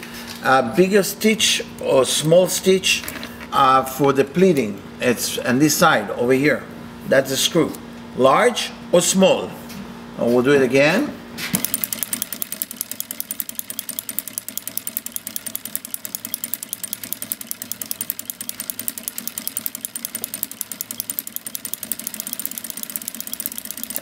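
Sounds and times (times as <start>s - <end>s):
sewing machine clattering: 11.6s - 24.0s.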